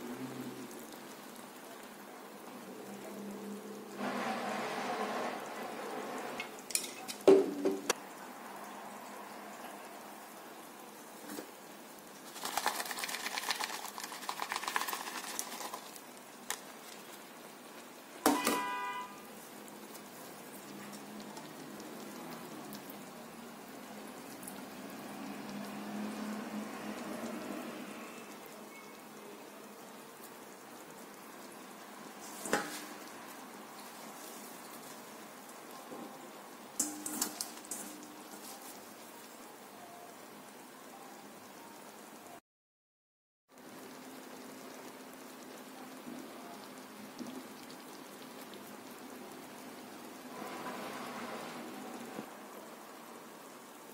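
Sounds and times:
crackly rustling: 12.2 - 17.9.

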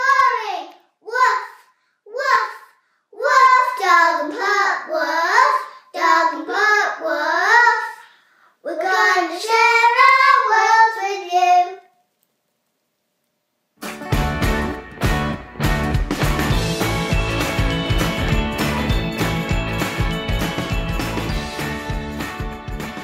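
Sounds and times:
girls singing unaccompanied: 3.2 - 8.0, 8.7 - 11.4.

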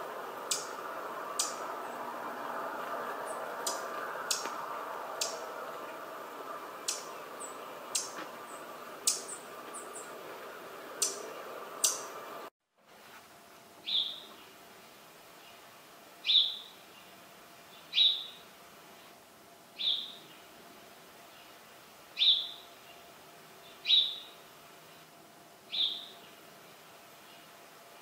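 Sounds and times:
sparrow chirps: 0.4 - 0.8, 1.4 - 1.7, 6.8 - 10.2, 11.0 - 12.2, 13.8 - 14.4, 16.2 - 17.1, 17.8 - 18.4, 19.8 - 20.4, 22.2 - 22.6, 23.6 - 24.4, 25.7 - 26.4.

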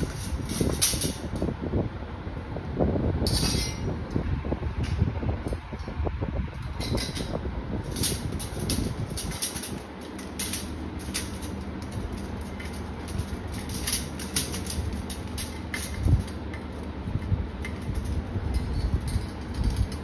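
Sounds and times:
metal parts clinking: 0.0 - 1.4, 3.2 - 3.9, 6.6 - 20.0
low steady rumble: 0.0 - 20.0.

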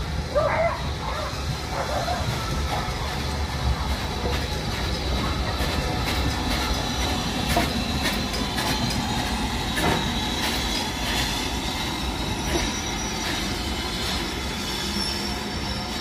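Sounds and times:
steam locomotive hissing: 0.0 - 16.0
knocks and clanks: 3.9 - 11.2.

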